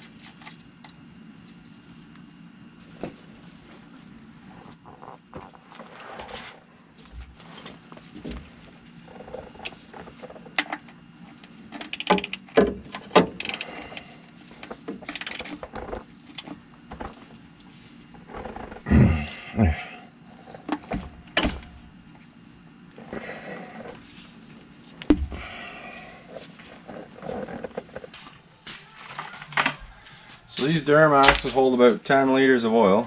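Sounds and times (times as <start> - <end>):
ratchet clicking: 11.9 - 12.4, 13.4 - 14.0, 15.1 - 15.5.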